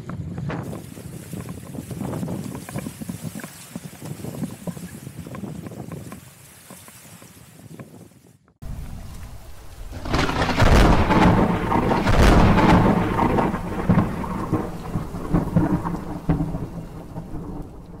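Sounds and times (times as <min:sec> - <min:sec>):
steady rain: 0:08.6 - 0:18.0
thunder rumbling: 0:08.6 - 0:18.0.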